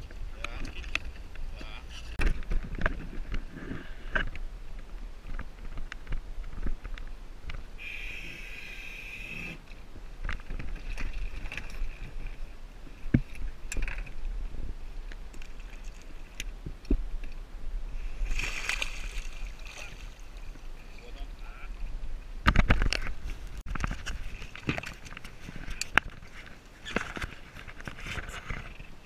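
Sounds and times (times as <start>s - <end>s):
knocks and splashes: 10.3s - 12.3s, 18.3s - 20.4s
hissing splashes: 18.2s - 20.2s.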